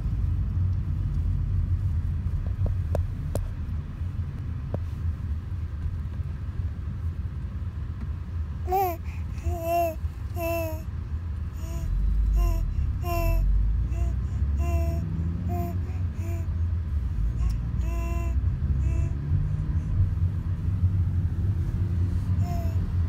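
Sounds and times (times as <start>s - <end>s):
moving car rumble: 0.0s - 23.0s
infant babbling and cooing: 8.6s - 10.9s, 11.5s - 16.6s, 17.3s - 19.4s, 22.2s - 23.0s.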